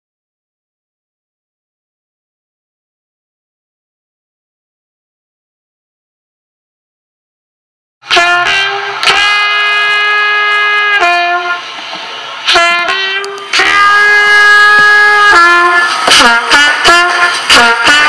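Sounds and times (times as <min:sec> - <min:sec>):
trumpet melody: 0:08.0 - 0:11.8, 0:12.4 - 0:18.0.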